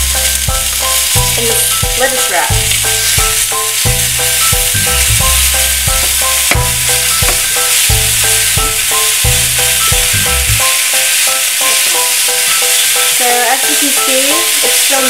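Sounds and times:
background music with plucked melody: 0:00.0 - 0:15.0
fish sizzling in a frying pan: 0:00.0 - 0:15.0
turner knocking on pan: 0:02.5 - 0:10.3.

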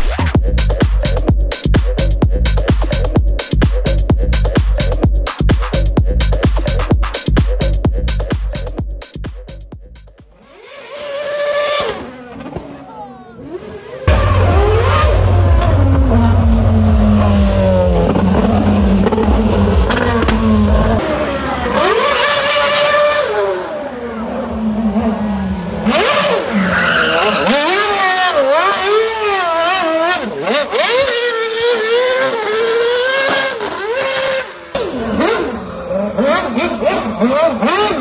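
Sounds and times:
racing car engine revving hard: 0:10.3 - 0:12.7, 0:13.4 - 0:38.0
tyre squeal: 0:26.1 - 0:31.8.

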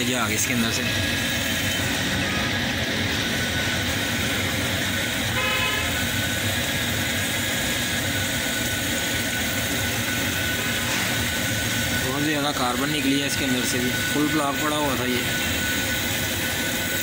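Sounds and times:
vehicle horn toot: 0:05.3 - 0:06.1.

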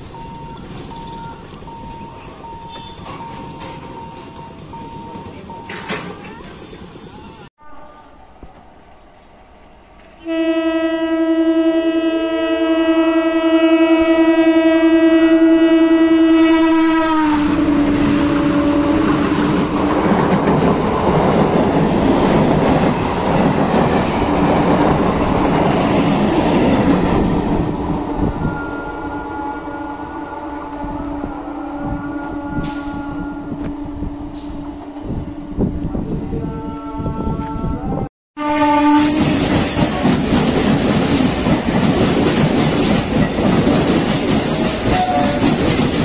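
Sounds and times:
train wheel clatter and rumble: 0:00.0 - 0:07.0, 0:17.6 - 0:28.5, 0:39.0 - 0:46.0
train horn blast: 0:02.7 - 0:03.1, 0:10.2 - 0:19.5, 0:28.1 - 0:34.6, 0:35.2 - 0:39.8, 0:44.5 - 0:45.6.

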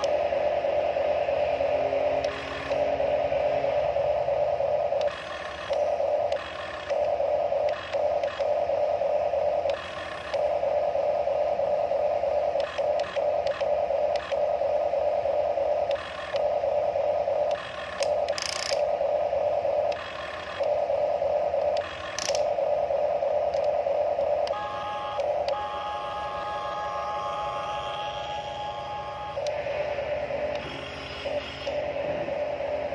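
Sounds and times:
gears clicking: 0:17.5 - 0:18.9, 0:21.8 - 0:22.5
toy electric motors whining: 0:21.8 - 0:22.5.

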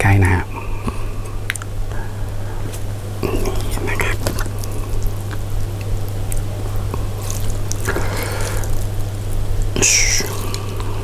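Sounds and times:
low hum: 0:00.0 - 0:11.0
soup dripping and trickling: 0:04.4 - 0:11.0.

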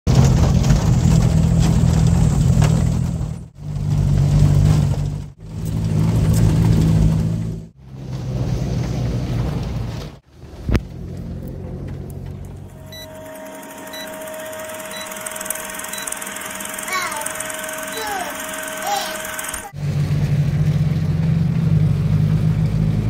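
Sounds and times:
knocks and rattles: 0:00.1 - 0:12.9
vehicle engine drone: 0:00.1 - 0:23.0.

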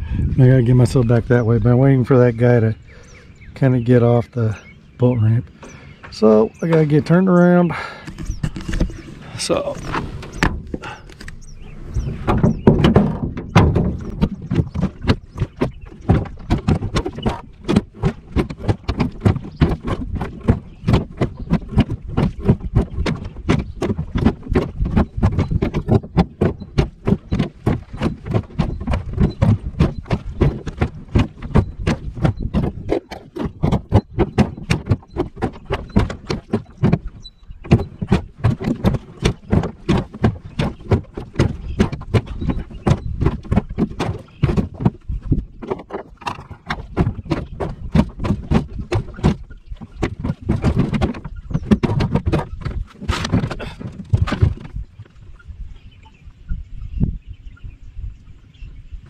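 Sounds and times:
knocking on aluminum boat: 0:12.0 - 0:54.8.

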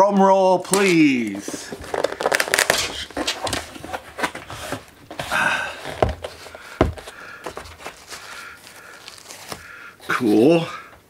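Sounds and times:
cardboard lid scraping: 0:01.3 - 0:09.6.

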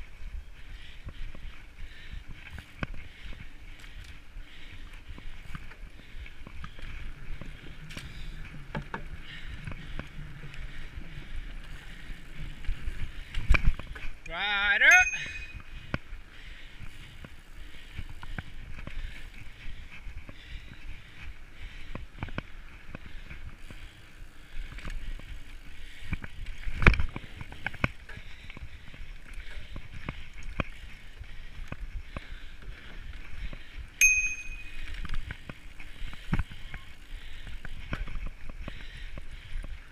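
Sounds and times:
bike rattling over bumps: 0:00.0 - 0:14.3, 0:15.0 - 0:39.9
bike tyres rolling on dirt: 0:00.0 - 0:39.9
short metallic ring: 0:14.9 - 0:15.6, 0:34.0 - 0:34.8.

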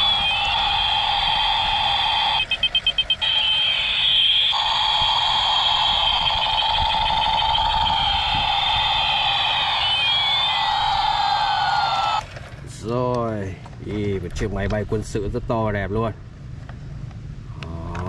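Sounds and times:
short electronic beeps: 0:00.0 - 0:10.7
toy siren-like tone: 0:00.0 - 0:12.2.

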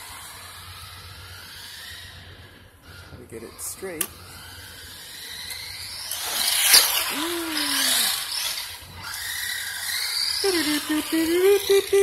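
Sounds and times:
electric toy truck motor whining: 0:00.0 - 0:12.0.

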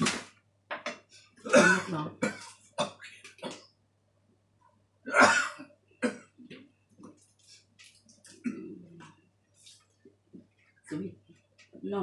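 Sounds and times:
person coughing: 0:01.4 - 0:03.6, 0:05.1 - 0:06.3.

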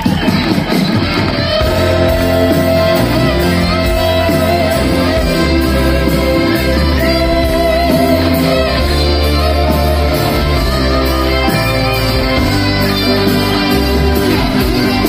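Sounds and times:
bass guitar: 0:00.0 - 0:15.0
guitar melody: 0:00.0 - 0:15.0.

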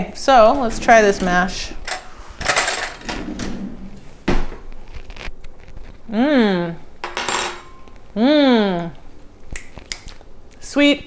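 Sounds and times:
woman humming: 0:06.1 - 0:06.9, 0:08.1 - 0:09.1.

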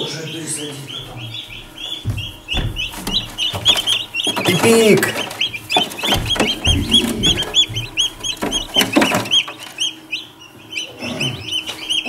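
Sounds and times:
chicks peeping: 0:00.0 - 0:12.0
soft knocks: 0:01.0 - 0:09.6.

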